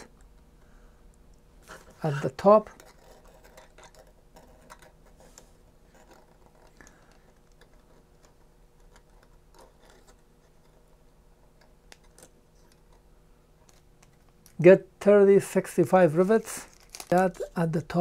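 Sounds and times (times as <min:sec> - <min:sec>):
low steady hum: 0:00.0 - 0:18.0
small plastic parts clicking: 0:02.7 - 0:10.8, 0:11.4 - 0:14.6, 0:16.7 - 0:17.6.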